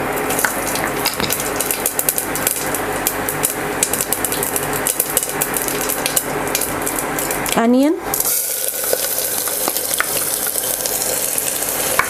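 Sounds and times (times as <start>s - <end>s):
oil sizzling: 0.0s - 12.0s
seeds popping in hot oil: 0.2s - 12.0s.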